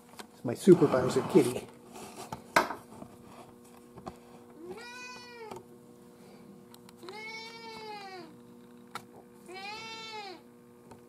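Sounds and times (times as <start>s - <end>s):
faint steady hum: 0.0s - 11.0s
cat meowing: 4.6s - 5.6s, 7.0s - 8.4s, 9.5s - 10.4s.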